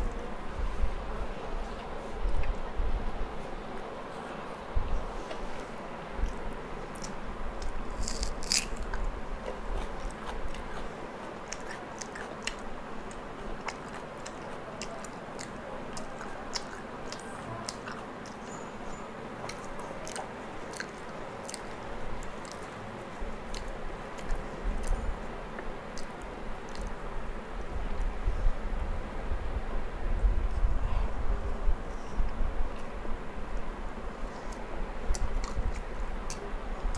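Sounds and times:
person chewing with mouth clicks: 0:05.6 - 0:18.6, 0:19.4 - 0:27.0, 0:34.5 - 0:36.4
crunchy bites: 0:06.2 - 0:18.5, 0:19.4 - 0:25.0.

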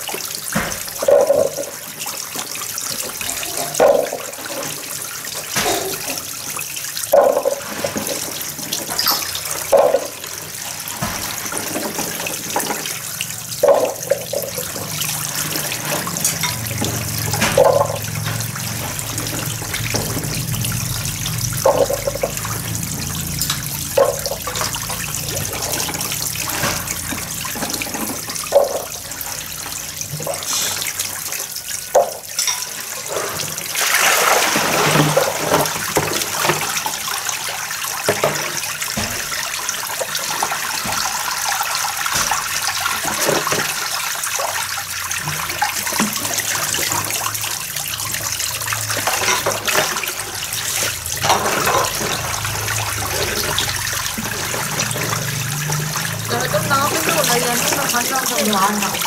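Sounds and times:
water running from a hose: 0:00.0 - 0:59.0
water rushing onto concrete: 0:00.0 - 0:59.0
dishes clinking: 0:08.8 - 0:10.2, 0:15.9 - 0:18.3, 0:21.6 - 0:22.4, 0:23.2 - 0:24.8, 0:32.0 - 0:32.8.

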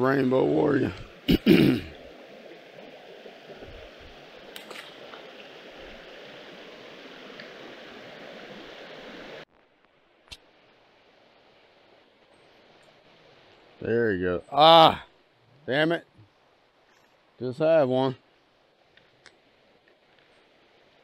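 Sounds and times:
river water rushing: 0:00.0 - 0:09.4.

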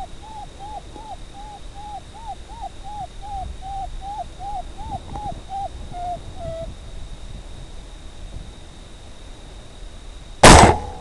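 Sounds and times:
predator call distress cries: 0:00.0 - 0:06.7.

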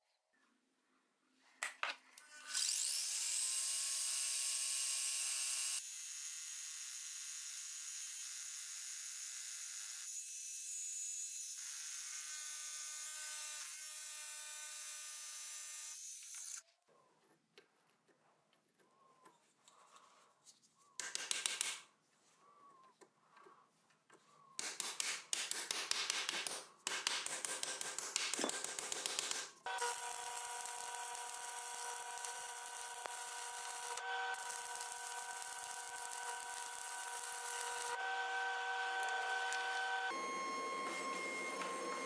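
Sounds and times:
electric arc welding crackling: 0:27.5 - 0:40.1
constant whine: 0:29.7 - 0:42.0.

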